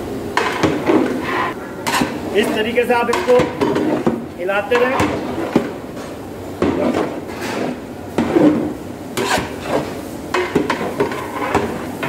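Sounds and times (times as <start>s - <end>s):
metal spatula scraping a pot: 0.4s - 5.8s, 6.8s - 12.0s.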